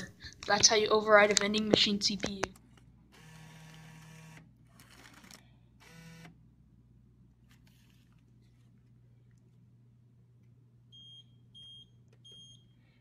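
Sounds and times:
bill acceptor motor whirring: 0:03.2 - 0:06.3.

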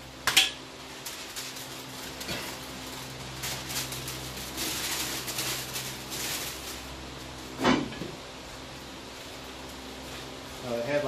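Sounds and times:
steady low hum: 0:00.0 - 0:11.0
paper and plastic crinkling: 0:00.9 - 0:07.0.

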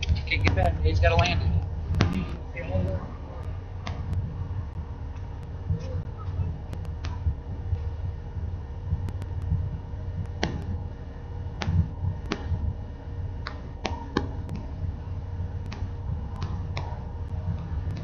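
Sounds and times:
low steady rumble: 0:00.0 - 0:18.0
sharp clicks and ticks: 0:06.7 - 0:07.2, 0:09.0 - 0:09.6.

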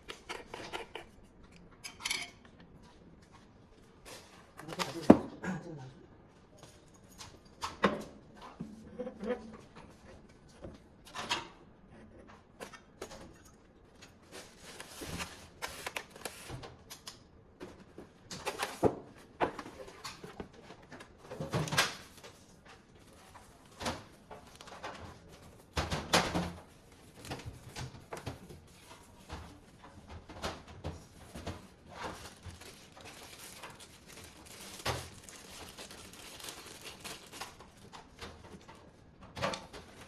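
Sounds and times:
plastic bag and foam rustling: 0:14.2 - 0:16.6, 0:31.0 - 0:38.7.

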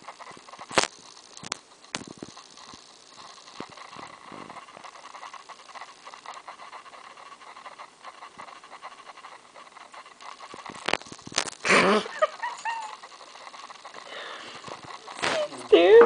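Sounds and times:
small rustles and clicks: 0:00.0 - 0:16.0
puppy panting: 0:03.2 - 0:10.8, 0:12.0 - 0:15.8
puppy vocal outburst: 0:11.6 - 0:16.0.

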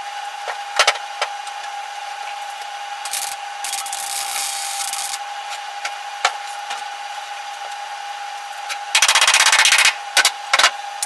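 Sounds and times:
faint steady hum: 0:00.0 - 0:11.0
welder crackling: 0:03.0 - 0:05.2.

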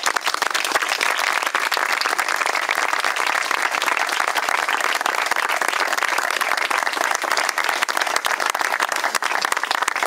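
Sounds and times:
people applauding: 0:00.0 - 0:10.0.

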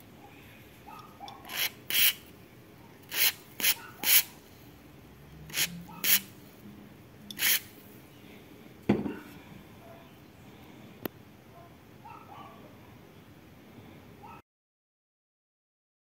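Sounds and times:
aerosol spray squirts: 0:01.5 - 0:02.2, 0:05.5 - 0:06.3, 0:07.3 - 0:07.8.

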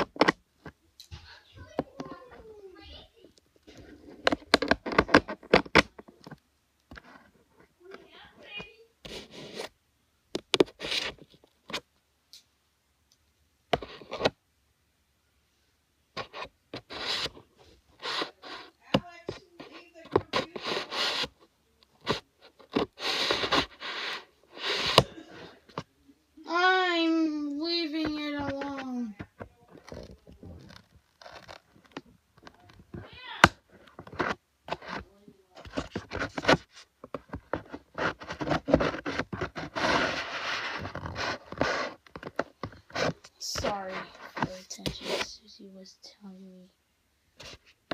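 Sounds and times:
packaging rustling and scraping: 0:10.6 - 0:11.8, 0:16.2 - 0:25.9, 0:28.4 - 0:45.4
packaging scraping: 0:22.0 - 0:25.6, 0:35.7 - 0:45.3.

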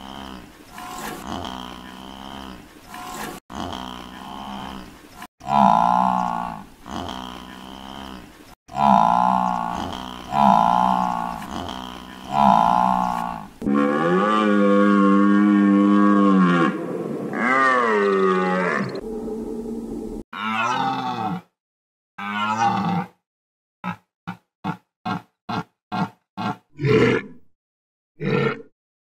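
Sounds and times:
cow mooing: 0:03.5 - 0:19.3.

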